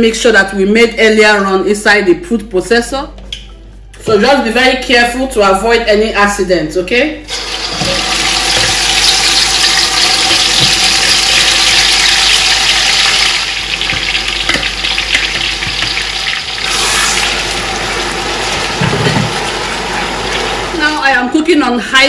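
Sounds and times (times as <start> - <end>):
spatula knocking on pot: 13.8 - 16.0.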